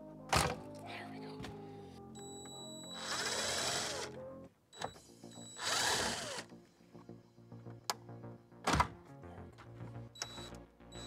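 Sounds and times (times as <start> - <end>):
cordless drill spinning out screws: 3.0 - 4.1, 5.6 - 6.4.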